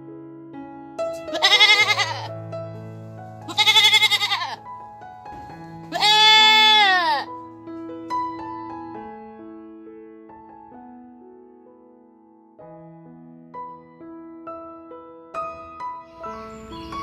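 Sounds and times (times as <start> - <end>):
soft piano music: 0.0 - 17.0
farm animal bleating: 1.2 - 2.3, 3.4 - 4.7, 5.8 - 7.3.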